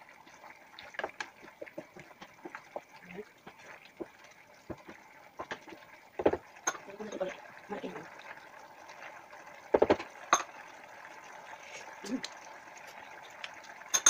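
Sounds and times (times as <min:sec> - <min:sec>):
spatula knocking and scraping a pan: 0:03.5 - 0:06.4, 0:09.7 - 0:10.1.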